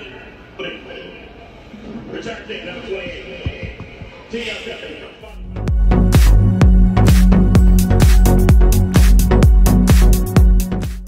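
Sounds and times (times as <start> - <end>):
electronic dance music: 5.3 - 11.0.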